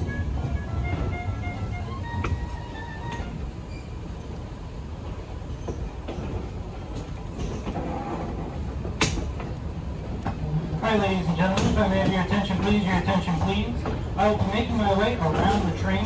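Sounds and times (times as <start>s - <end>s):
railway coach low rumble: 0.0s - 16.0s
wheels clicking on rails: 5.0s - 16.0s.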